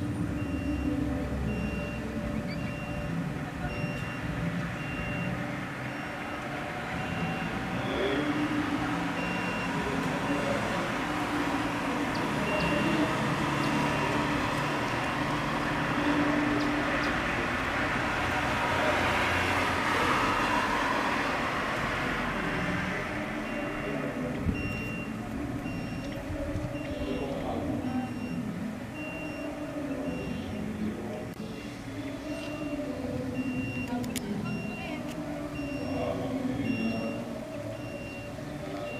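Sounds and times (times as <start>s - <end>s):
traffic rumble: 0.0s - 38.9s
faint high beeps: 0.3s - 10.8s, 12.1s - 14.4s, 23.4s - 30.8s, 31.5s - 38.9s.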